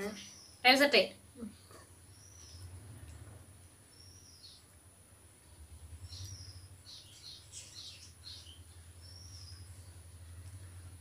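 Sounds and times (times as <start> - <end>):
faint low hum: 0.0 - 11.0
bird whistling and chirping: 3.9 - 4.6, 6.1 - 9.7.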